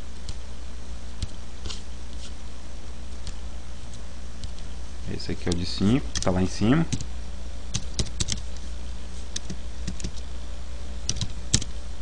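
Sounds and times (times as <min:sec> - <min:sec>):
keyboard keystrokes and clicks: 0:07.7 - 0:08.4, 0:09.4 - 0:10.2, 0:11.1 - 0:11.7.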